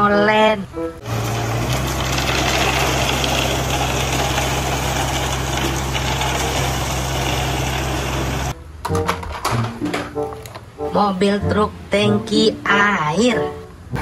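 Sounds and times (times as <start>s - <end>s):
diesel engine running: 1.0s - 8.6s
rough rattle: 1.1s - 8.5s.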